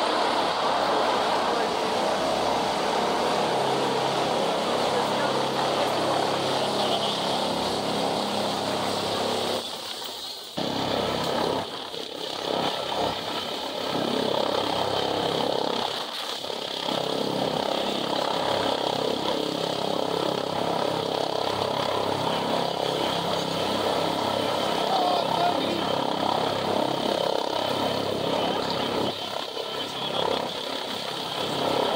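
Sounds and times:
helicopter hovering: 0.0 - 31.9.

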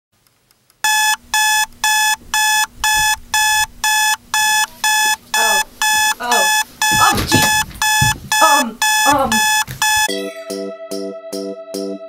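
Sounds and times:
alarm clock beeping: 0.8 - 10.2.

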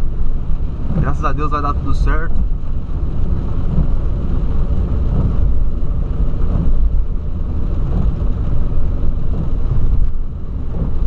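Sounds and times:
car engine and tyres on wet road: 0.0 - 11.0.

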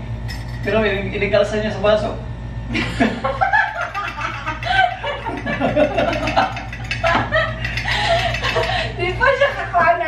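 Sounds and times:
woman and man laughing: 2.7 - 9.7.

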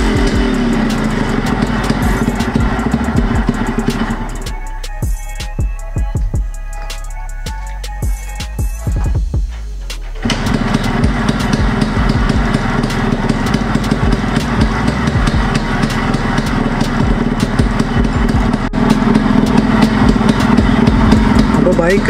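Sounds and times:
two-stroke engine idling: 0.0 - 5.5, 10.2 - 22.0.

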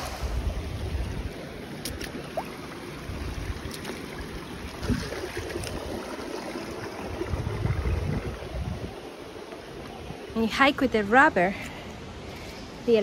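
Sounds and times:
stream water running over rocks: 0.0 - 13.0
feet wading through water: 1.2 - 7.6
wind rumble on microphone: 4.7 - 6.0, 7.0 - 9.1.

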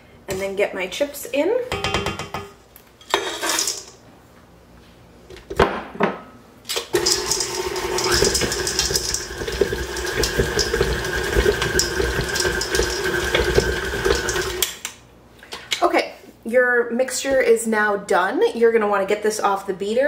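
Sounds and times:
stand mixer beating dough: 7.0 - 14.6.

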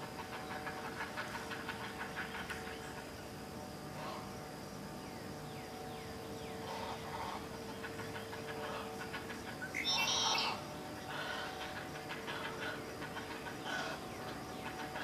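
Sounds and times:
heron chicks clattering chatter: 0.0 - 3.2, 6.6 - 15.0
faint steady hum: 0.0 - 15.0.

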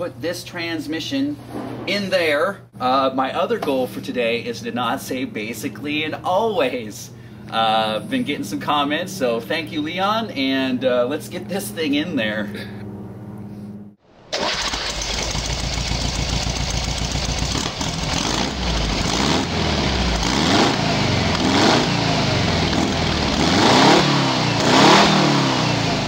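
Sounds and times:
engine revving: 14.3 - 26.0.

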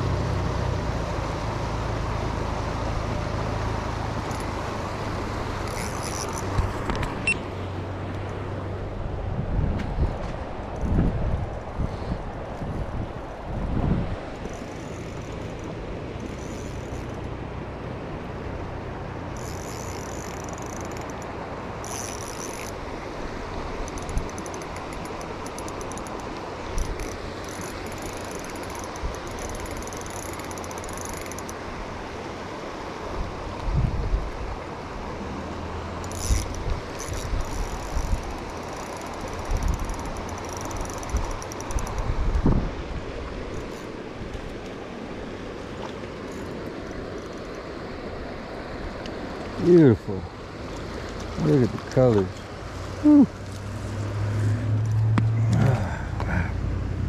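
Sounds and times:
river current rushing: 0.0 - 57.0
fishing reel gears whirring: 3.5 - 7.5, 14.4 - 17.4, 19.3 - 31.8, 36.0 - 42.4, 43.3 - 45.0, 46.0 - 47.8
low bumps: 51.5 - 57.0.

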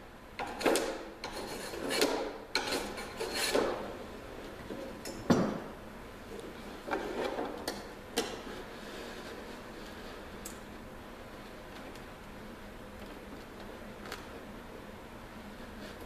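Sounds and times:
hand plane scraping wood: 0.5 - 3.9.

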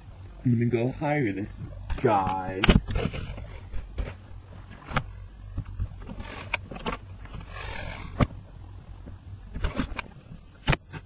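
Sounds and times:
steady low hum: 0.0 - 11.0
fabric rubbing: 7.3 - 8.2.

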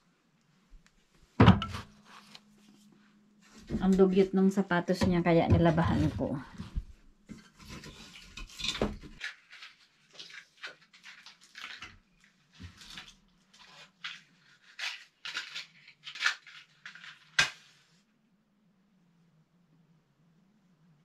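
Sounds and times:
faint steady hum: 17.9 - 21.0.

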